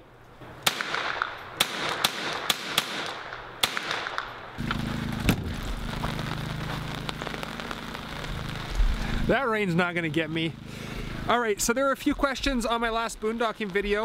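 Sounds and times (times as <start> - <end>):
rifle shots: 0.6 - 5.5
low hum: 4.3 - 14.0.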